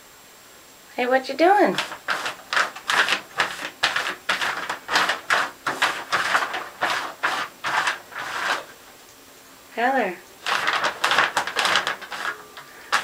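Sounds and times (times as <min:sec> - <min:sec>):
shower curtain crinkling: 0:01.5 - 0:09.1, 0:10.3 - 0:13.0.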